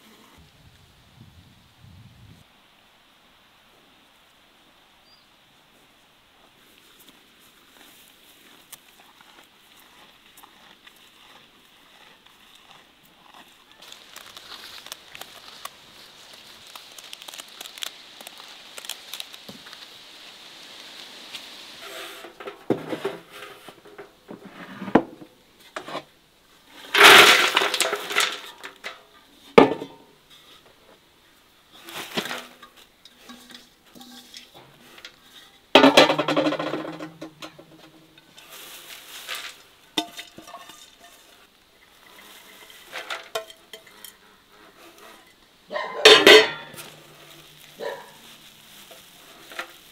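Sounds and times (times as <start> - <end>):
vegetables rustling onto metal: 21.8 - 26.1, 26.8 - 30.6, 31.7 - 44.2, 44.8 - 49.9
bowl clanking against metal rim: 32.5 - 37.6, 46.0 - 47.0.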